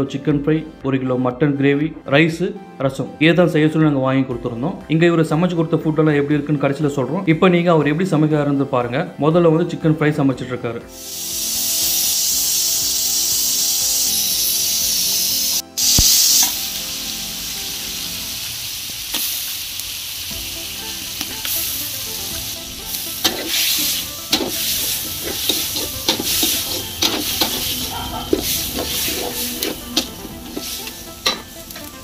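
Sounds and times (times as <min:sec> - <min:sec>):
chicken sizzling in a pan: 0:10.9 - 0:32.0
metal spatula scraping a pan: 0:22.9 - 0:32.0.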